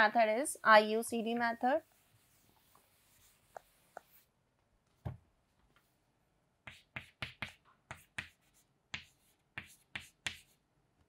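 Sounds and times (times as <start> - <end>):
chalk scraping on chalkboard: 1.8 - 4.3, 6.7 - 10.6.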